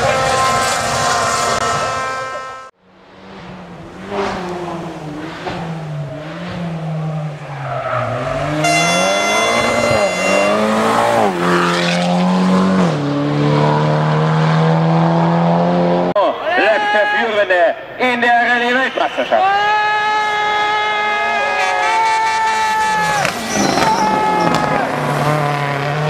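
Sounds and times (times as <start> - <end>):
car engine revving hard: 3.2 - 16.1, 23.0 - 26.0.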